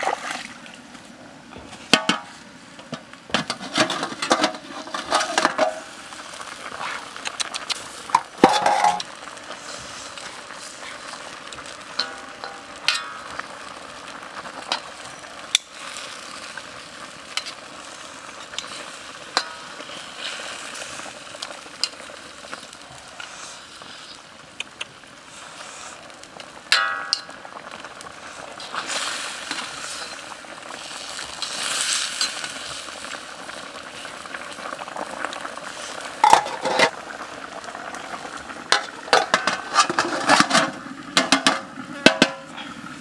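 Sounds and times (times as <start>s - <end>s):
ribs sizzling in a wok: 1.8s - 43.0s
metal basin clatter: 1.9s - 5.9s, 8.1s - 9.1s, 11.9s - 13.3s, 36.2s - 37.0s, 38.7s - 42.5s.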